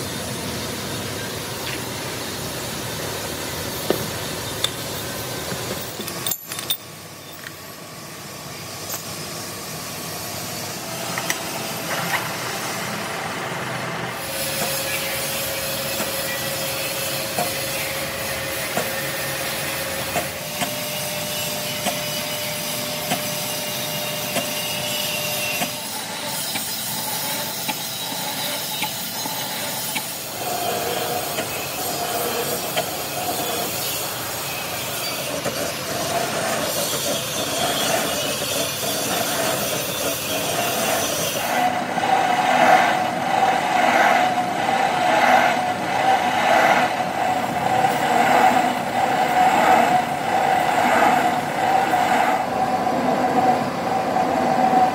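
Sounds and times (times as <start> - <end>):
lathe running: 8.8 - 54.9
cutting tool scraping metal: 21.3 - 42.9.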